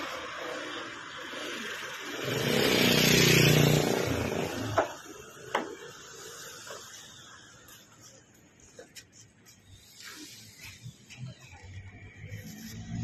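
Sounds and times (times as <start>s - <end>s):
vehicle driving past: 11.6s - 13.0s.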